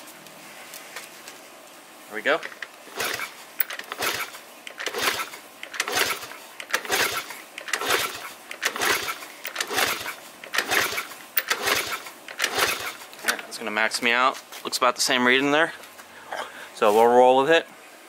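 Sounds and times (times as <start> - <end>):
motorcycle engine kickstart cranking: 2.5 - 13.4.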